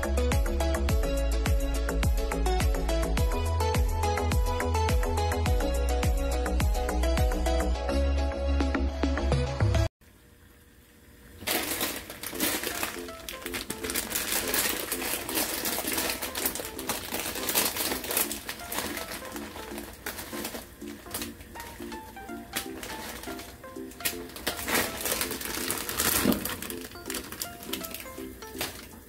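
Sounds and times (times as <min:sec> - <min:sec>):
plastic packet crinkling: 0:11.4 - 0:29.0
soft background music: 0:11.8 - 0:29.0.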